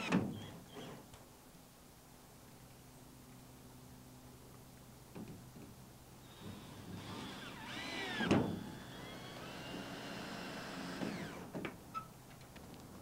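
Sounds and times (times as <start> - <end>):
cordless drill motor whine: 6.3 - 11.5.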